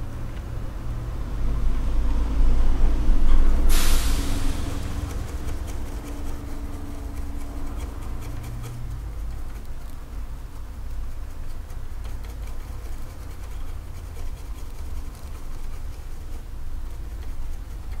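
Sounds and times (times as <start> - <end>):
steady low hum: 0.0 - 18.0
brush scrubbing circuit board: 3.7 - 18.0.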